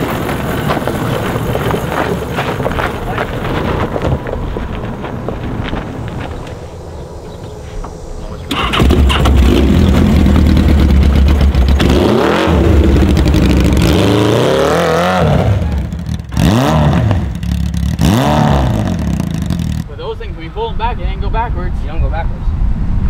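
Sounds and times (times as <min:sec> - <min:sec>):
small engine starting and revving: 0:08.5 - 0:19.8.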